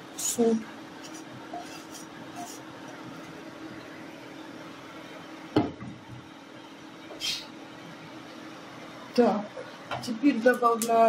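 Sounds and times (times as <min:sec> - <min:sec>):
wooden spatula scraping a pan: 0:01.0 - 0:03.2.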